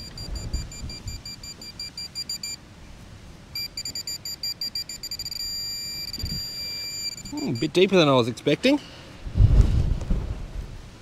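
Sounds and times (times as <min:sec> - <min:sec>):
metal detector pinpointer beeping: 0:00.0 - 0:02.6, 0:03.5 - 0:08.0.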